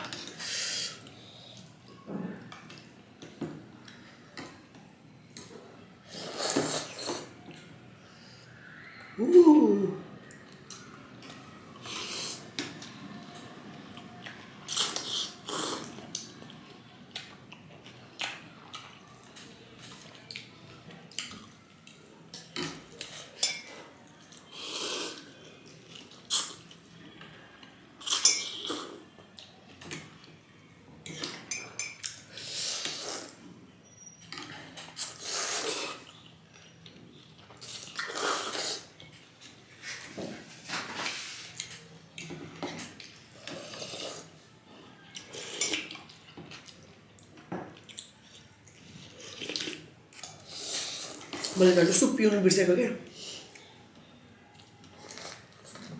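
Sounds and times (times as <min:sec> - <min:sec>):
cutlery clinking against bowls: 0:22.3 - 0:23.9, 0:28.0 - 0:28.9, 0:31.0 - 0:32.2, 0:45.2 - 0:46.8.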